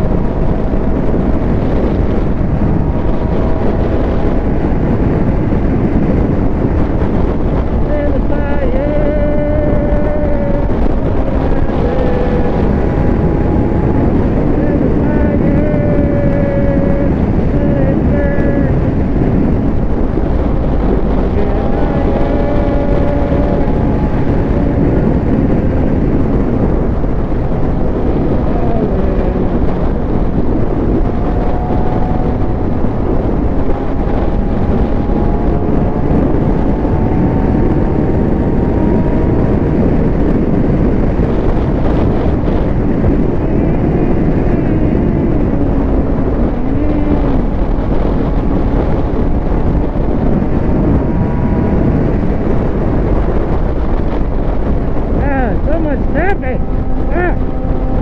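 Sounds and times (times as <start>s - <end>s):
wind rushing over microphone: 0.0s - 58.0s
motorcycle engine revving: 9.1s - 54.0s.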